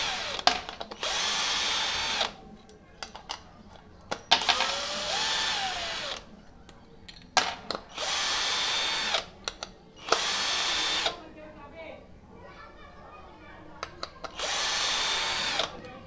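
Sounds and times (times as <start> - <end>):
cordless drill driving screws: 0.0 - 2.4, 4.4 - 6.3, 7.9 - 9.3, 10.0 - 11.2, 14.3 - 15.8.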